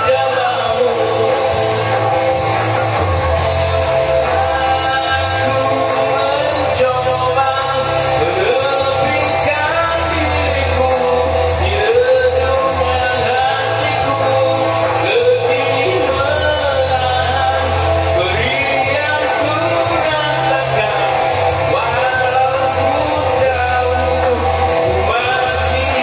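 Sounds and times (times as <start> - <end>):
man singing into a microphone: 0.0 - 3.0, 4.0 - 26.0
backing track with bass line: 0.0 - 26.0.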